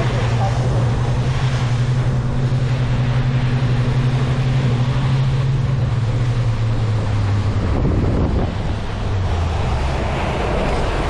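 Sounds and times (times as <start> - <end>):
boat engine drone: 0.0 - 11.0
wind on microphone: 0.0 - 11.0.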